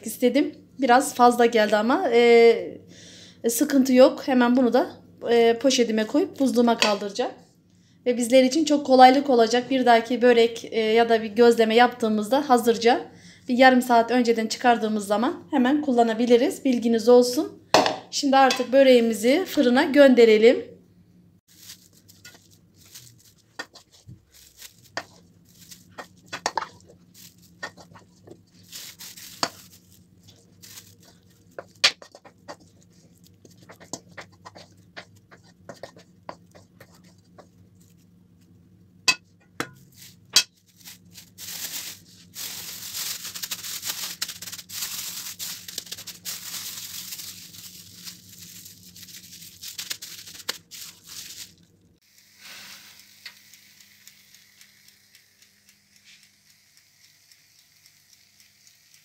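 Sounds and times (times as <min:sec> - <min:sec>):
plastic bag crinkling: 0:21.5 - 0:33.8, 0:39.8 - 0:51.8
plastic bag rustling: 0:21.5 - 0:33.8, 0:39.8 - 0:51.8.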